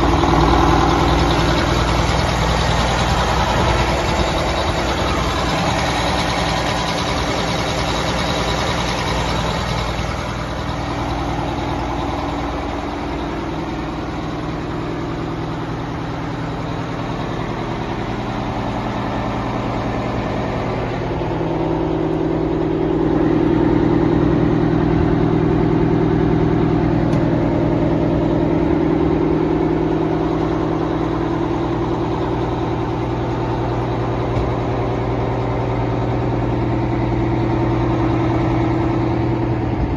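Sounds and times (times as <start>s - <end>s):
diesel truck engine idling: 0.0s - 39.9s.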